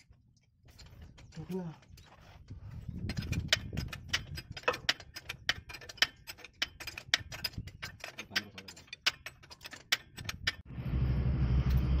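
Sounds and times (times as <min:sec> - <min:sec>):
metallic clicks of hand tools: 0:03.1 - 0:10.7
low rumble: 0:10.6 - 0:12.0.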